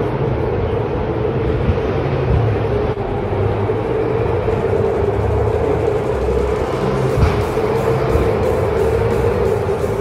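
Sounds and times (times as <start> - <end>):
race car engines droning: 0.0 - 10.0.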